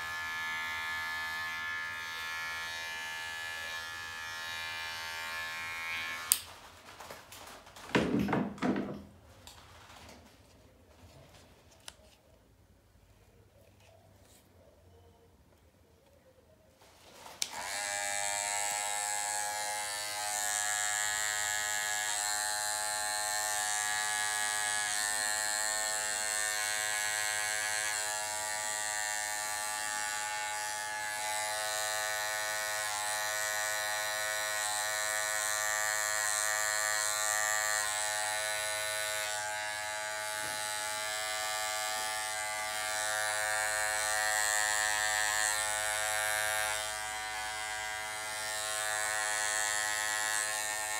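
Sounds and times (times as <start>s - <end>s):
electric hair clippers buzzing: 0.0s - 6.6s, 17.4s - 50.9s.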